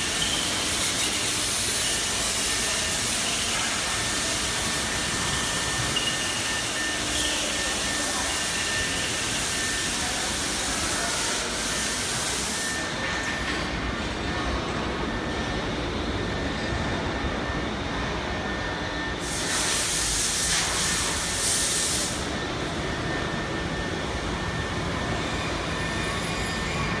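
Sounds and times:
cnc router running: 0.0 - 27.0
compressed air hiss: 19.2 - 22.2.

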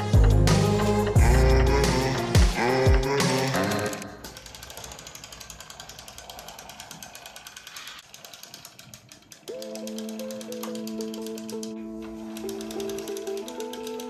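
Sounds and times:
rapid mechanical clicking: 0.0 - 14.0
held music notes: 9.5 - 14.0.

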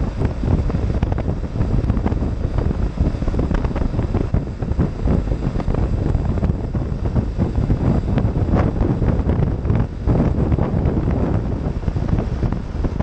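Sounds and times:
motorcycle engine rumble: 0.0 - 13.0
wind buffeting microphone: 0.0 - 13.0.

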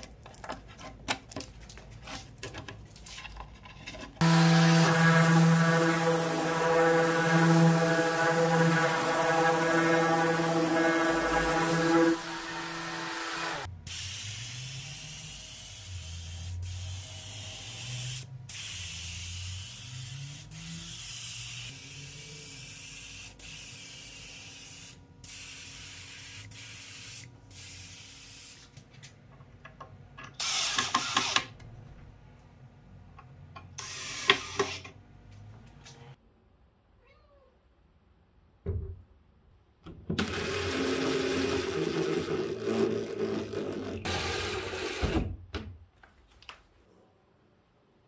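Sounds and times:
orbital sander running: 4.2 - 13.7.

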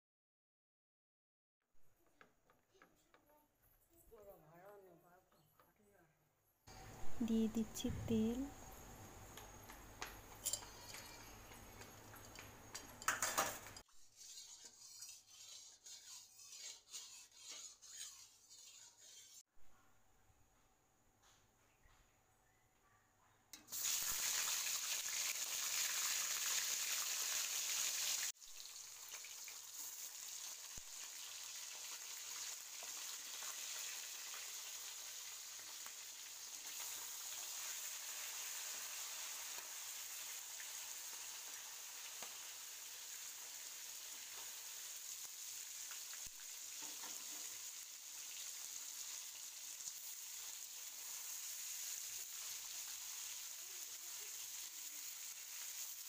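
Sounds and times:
fish sizzling in hot oil: 23.6 - 56.0.

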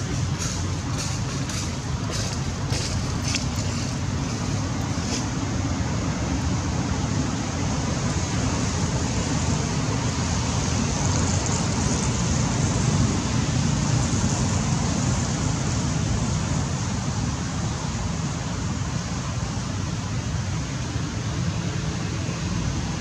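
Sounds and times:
low rumbling noise: 0.0 - 7.8.

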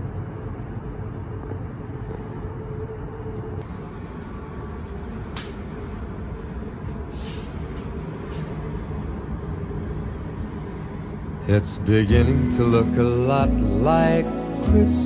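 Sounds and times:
vehicle rumbling: 0.0 - 15.0
short hisses: 7.1 - 7.7.

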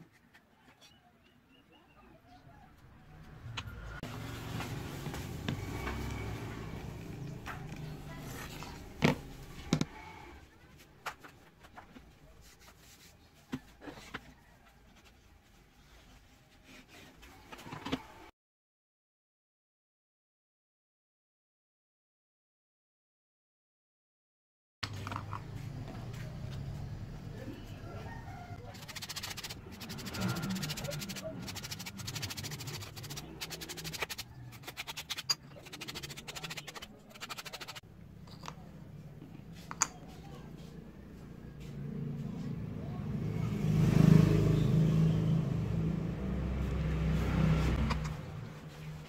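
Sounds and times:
sandpaper rubbing wood: 28.7 - 37.8.

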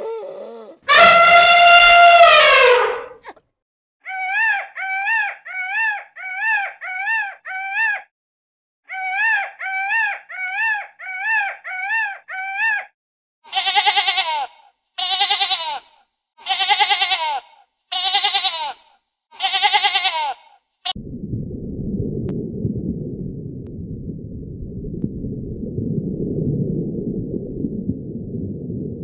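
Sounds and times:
peacock honking calls: 0.9 - 3.2
goats and sheep bleating: 13.5 - 20.6.

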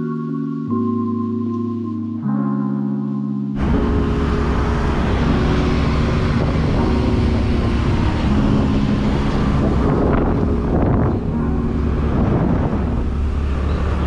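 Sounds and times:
vehicle engine running: 3.6 - 14.0
wind rush on microphone: 3.6 - 14.0.

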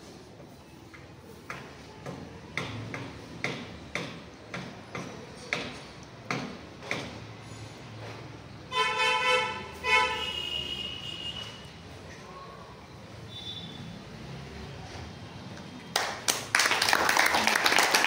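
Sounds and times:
vehicle horn honking: 8.7 - 11.7, 13.3 - 14.0.

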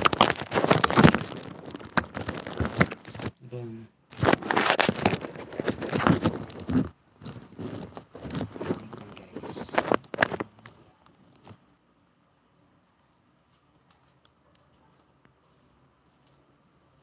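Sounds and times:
rustling crackling handling noise: 0.0 - 3.4, 4.1 - 11.7.

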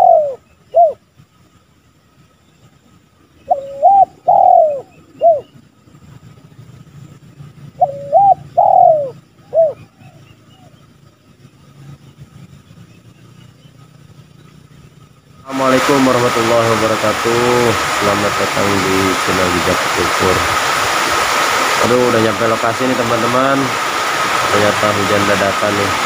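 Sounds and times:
dove cooing: 0.0 - 1.0, 3.4 - 5.5, 7.7 - 10.7.

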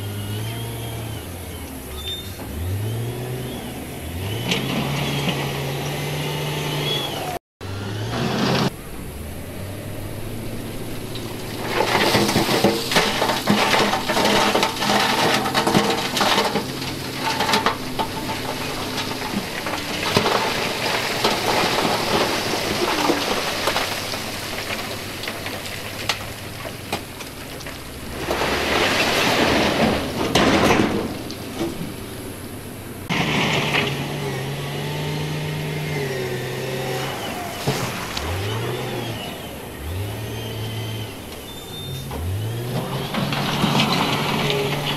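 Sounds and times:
diesel engine running: 0.0 - 44.9
stones scraping and tumbling: 9.9 - 32.5, 33.1 - 44.9
stones splashing into water: 11.5 - 30.6, 37.6 - 38.9.

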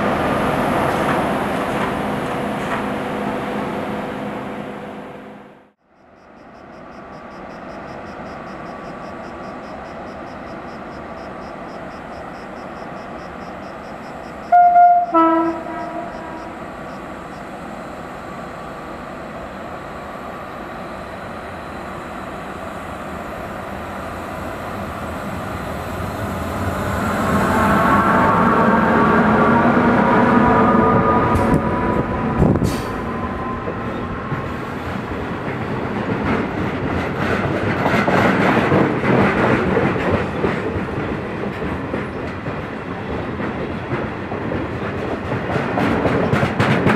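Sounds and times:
train rumbling past: 0.0 - 5.8, 6.4 - 46.9
two-note locomotive horn: 14.5 - 16.6.

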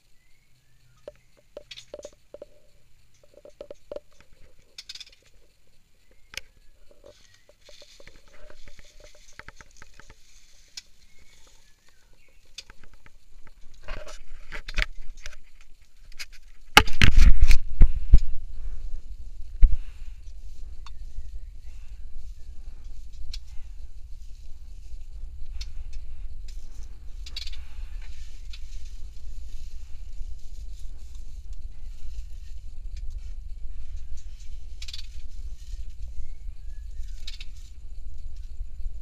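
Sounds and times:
nest material rustling and crackling: 3.2 - 15.6.

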